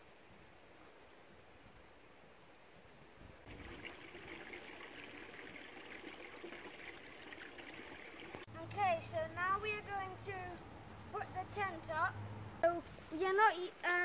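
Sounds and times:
running water: 3.4s - 8.8s.

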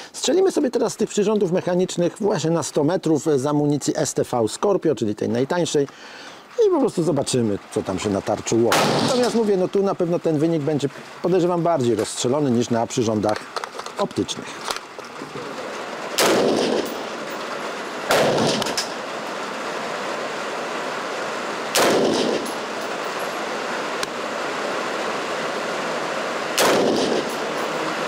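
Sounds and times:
rifle shots with echo: 8.7s - 9.3s, 16.2s - 17.3s, 18.1s - 19.0s, 21.7s - 22.7s, 26.6s - 27.6s.

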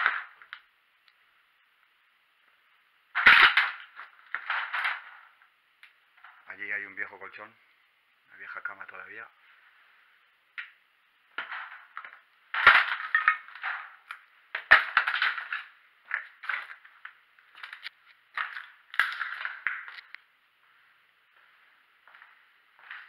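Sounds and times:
footsteps crunching on rubble: 11.4s - 23.0s.

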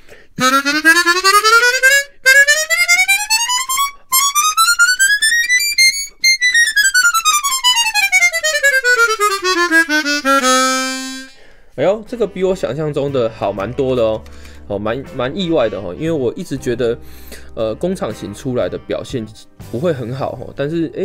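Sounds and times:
harmonica scale runs: 0.4s - 11.5s.

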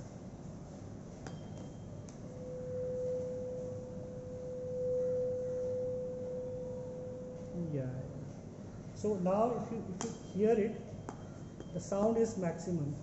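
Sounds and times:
tuning fork struck: 1.1s - 12.8s
resonating pure tone: 1.2s - 8.4s.

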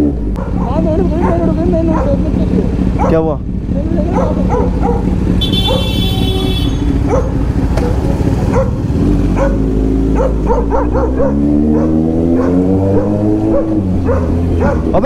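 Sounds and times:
motorcycle engine accelerating: 0.0s - 15.0s
dog barking: 0.4s - 3.3s, 4.0s - 15.0s.

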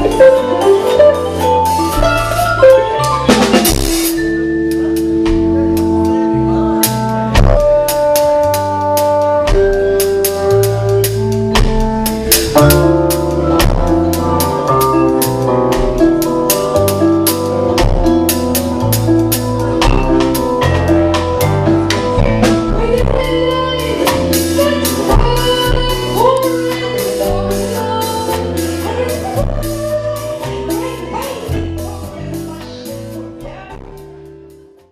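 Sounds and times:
electric bass line: 0.0s - 34.6s
drum kit with cymbal hits: 0.0s - 34.9s
woman singing: 22.1s - 34.3s.

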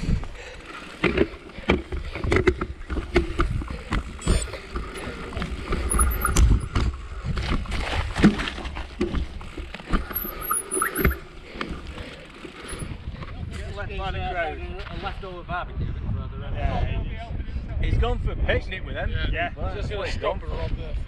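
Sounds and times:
bike knocks and rattles: 0.2s - 13.4s.

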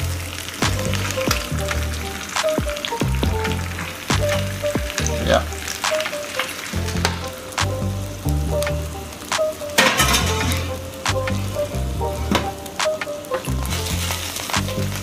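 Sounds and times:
music with stepping bass line: 0.0s - 5.8s, 6.8s - 9.4s, 10.1s - 12.9s, 13.5s - 15.0s
chicken sizzling: 0.0s - 15.0s.

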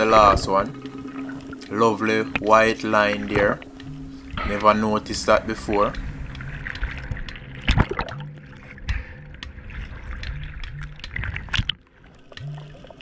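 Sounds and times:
background music with low bass: 0.0s - 13.0s
water trickling and sloshing: 0.0s - 13.0s
sharp clicks and pops: 5.5s - 12.6s.

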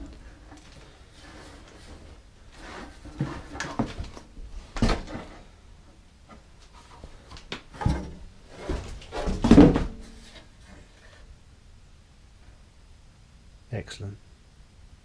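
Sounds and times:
metal scraping cardboard: 0.0s - 4.0s.

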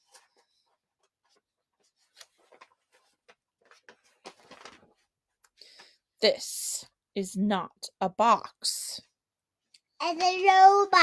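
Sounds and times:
page turning: 0.0s - 5.2s
paper rustling: 0.0s - 5.2s.

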